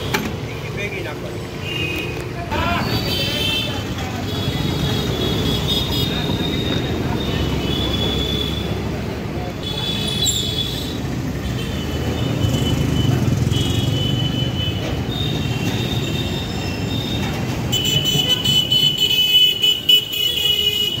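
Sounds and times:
rumble of traffic engines: 0:00.0 - 0:21.0.

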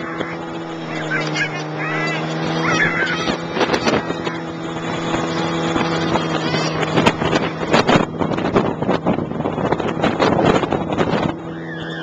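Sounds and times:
snowmobile engine running: 0:00.0 - 0:12.0
wind buffeting microphone: 0:00.0 - 0:12.0.

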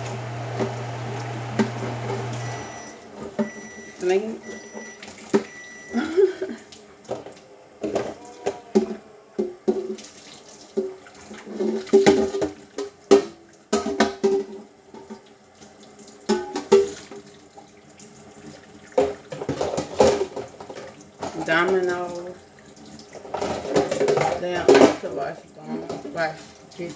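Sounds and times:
tap water running into sink: 0:00.0 - 0:03.8.

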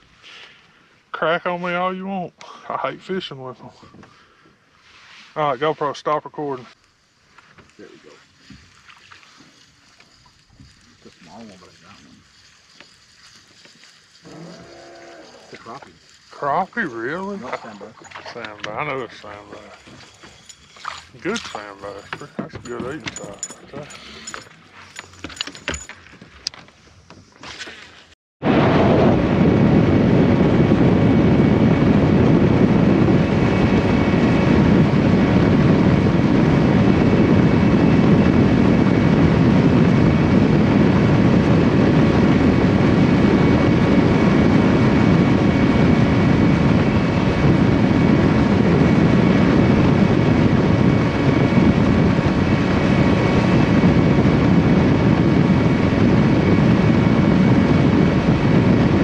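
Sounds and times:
outboard motor running: 0:08.2 - 0:26.0, 0:29.2 - 0:59.0
hull running over water: 0:28.4 - 0:59.0
wind rushing: 0:28.4 - 0:59.0.

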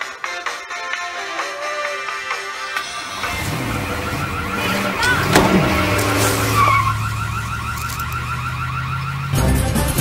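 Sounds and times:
suv engine revving: 0:02.8 - 0:10.0
tyres skidding: 0:02.8 - 0:10.0.

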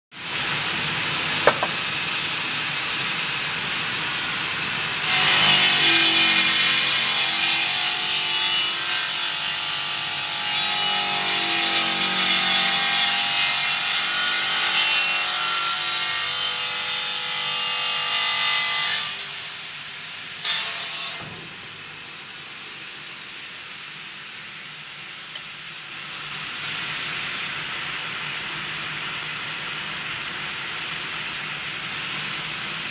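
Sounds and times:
mitre saw cutting aluminium: 0:01.4 - 0:01.8, 0:05.0 - 0:17.9.

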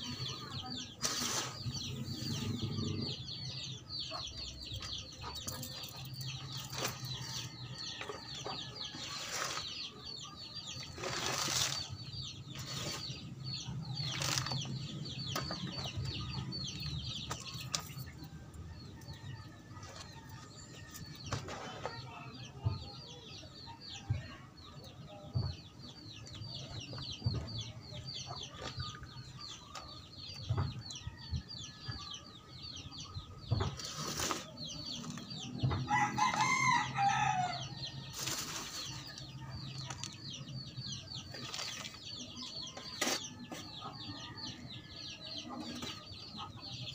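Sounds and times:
chickens clucking: 0:00.0 - 0:46.9
small birds chirping: 0:00.0 - 0:46.9
shovel scraping soil: 0:01.0 - 0:02.8, 0:08.9 - 0:09.9, 0:10.8 - 0:13.3, 0:14.0 - 0:14.7, 0:33.6 - 0:35.3, 0:38.1 - 0:40.1, 0:42.8 - 0:43.3.

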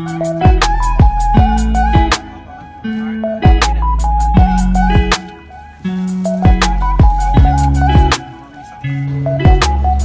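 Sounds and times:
melody: 0:00.0 - 0:10.0
kick drums: 0:00.5 - 0:02.2, 0:04.4 - 0:05.1
ticking hi-hats: 0:03.5 - 0:09.8.

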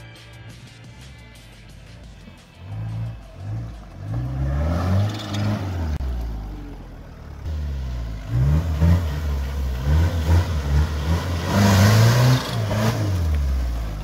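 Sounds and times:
truck engine revving hard: 0:02.6 - 0:06.1, 0:07.4 - 0:14.0.

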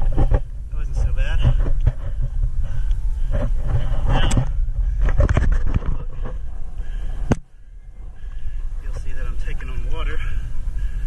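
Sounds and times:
low rumble on microphone: 0:00.0 - 0:11.0
camera handling scrapes and knocks: 0:03.3 - 0:06.4.

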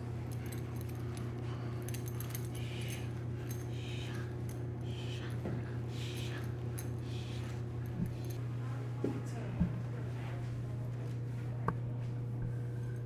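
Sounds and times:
low hum: 0:00.0 - 0:13.0
collar jingling and clicking: 0:00.2 - 0:08.4.

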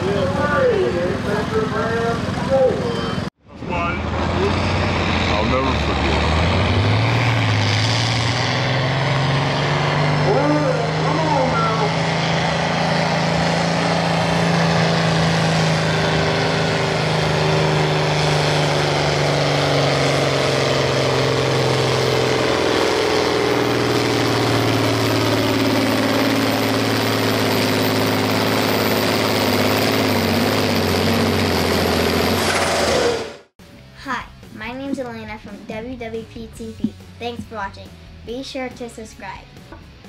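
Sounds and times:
tractor diesel engine under load: 0:00.0 - 0:40.0.

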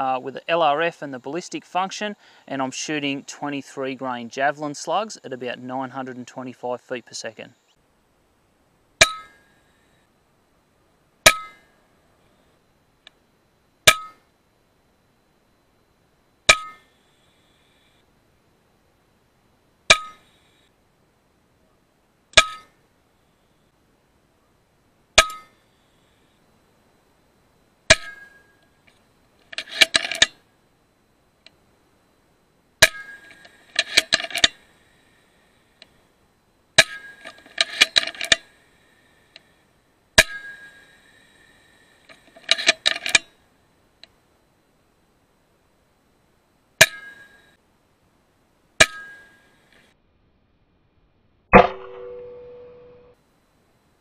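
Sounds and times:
air rifle shots with metallic ring: 0:22.4 - 0:22.8, 0:25.2 - 0:25.6, 0:27.9 - 0:28.5, 0:32.8 - 0:34.6, 0:36.8 - 0:38.4, 0:40.2 - 0:40.8, 0:46.8 - 0:47.3, 0:48.8 - 0:49.4, 0:51.5 - 0:53.1.

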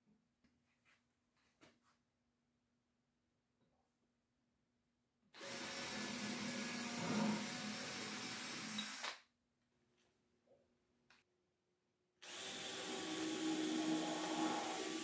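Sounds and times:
cordless drill drilling wood: 0:05.4 - 0:09.2, 0:12.2 - 0:15.0.

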